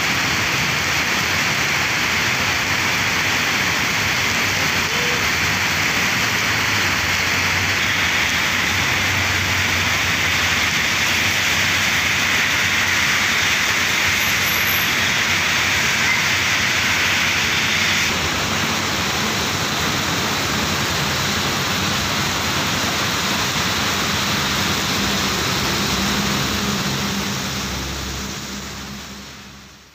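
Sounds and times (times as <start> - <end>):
motorbike engines on wet road: 0.0 - 29.9
steady rain falling: 0.0 - 29.9.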